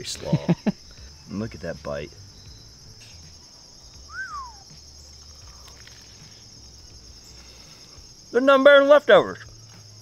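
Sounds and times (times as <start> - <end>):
crickets chirping: 0.0 - 10.0
bird whistle: 3.9 - 4.8.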